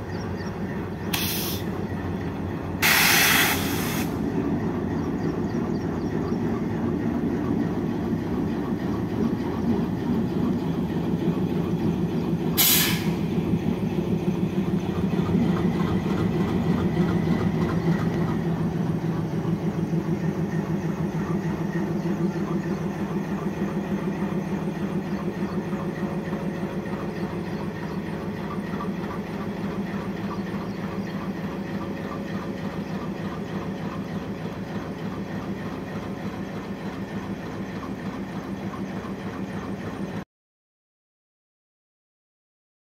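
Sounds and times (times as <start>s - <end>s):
diesel locomotive engine passing: 0.0s - 40.2s
sharp hiss: 1.1s - 1.7s, 2.8s - 4.2s, 12.6s - 13.3s.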